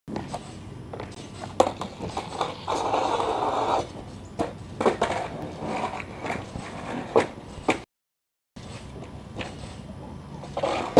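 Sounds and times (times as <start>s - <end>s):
skateboard grinding on metal rail: 0.2s - 7.8s, 8.6s - 10.9s
skateboard clacks: 1.0s - 7.8s.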